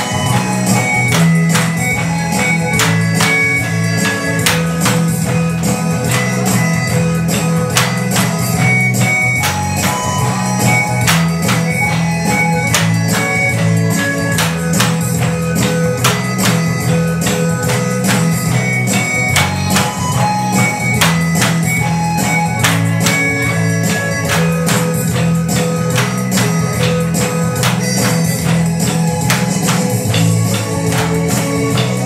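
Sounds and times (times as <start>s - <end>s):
music with melody and bass: 0.0s - 32.0s.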